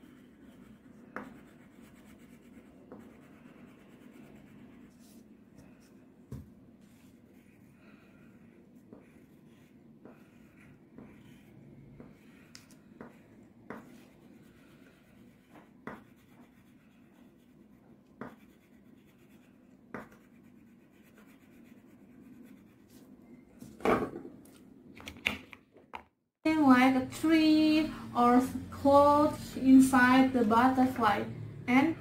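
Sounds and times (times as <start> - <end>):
crayon scribbling on paper: 0.0 - 5.8, 6.9 - 23.0.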